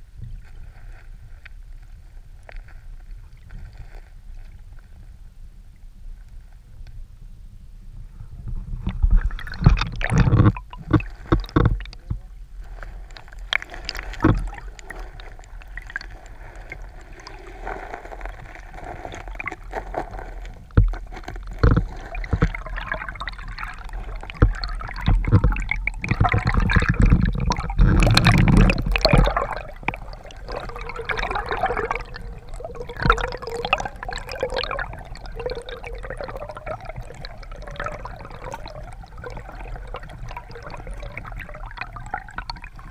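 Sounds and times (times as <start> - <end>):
muffled underwater river water gurgling: 0.0 - 42.9.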